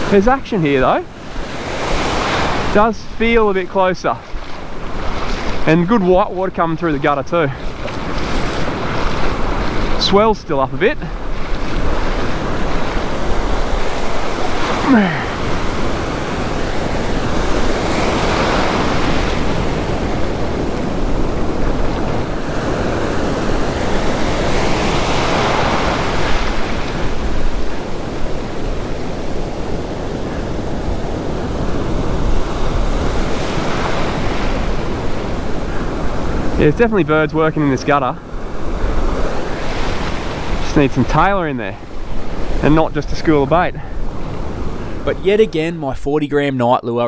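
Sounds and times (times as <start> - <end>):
ocean surf breaking: 0.0 - 46.4.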